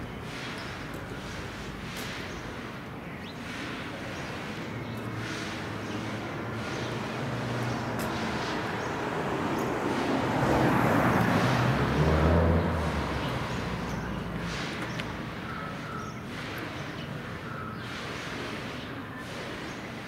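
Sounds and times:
vehicle passing by: 4.3 - 19.7.

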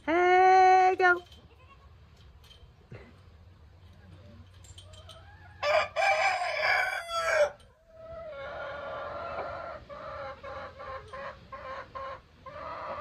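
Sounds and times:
rooster crowing: 5.6 - 7.6.

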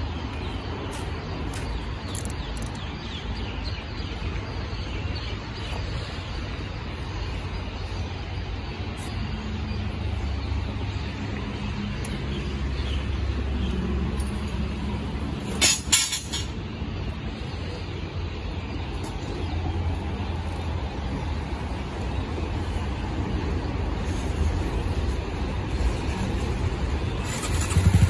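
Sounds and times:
motorcycle engine idling: 27.0 - 28.0.

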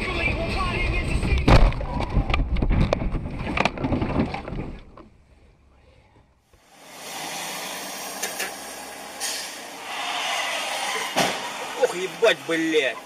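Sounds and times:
road noise in moving car: 6.5 - 13.0.

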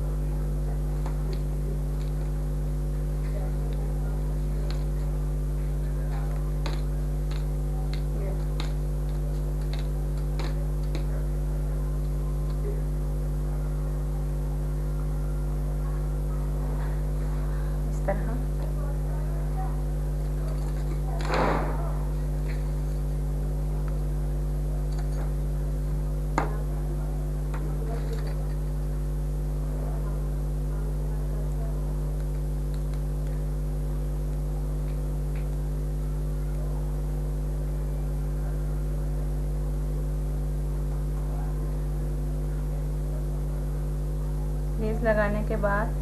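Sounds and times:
electrical mains hum: 0.0 - 46.0.

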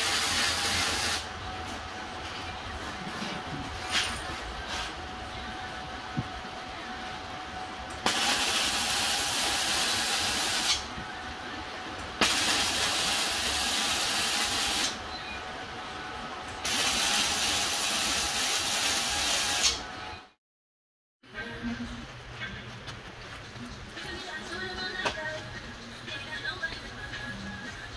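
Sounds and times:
arc welding crackling: 0.0 - 1.3, 8.0 - 11.0, 12.0 - 15.0, 16.6 - 19.8.

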